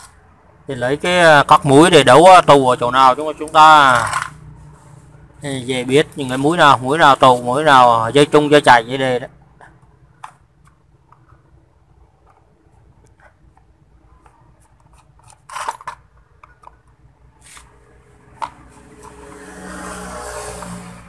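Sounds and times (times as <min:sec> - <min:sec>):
rasping scrape: 0:18.6 - 0:21.0.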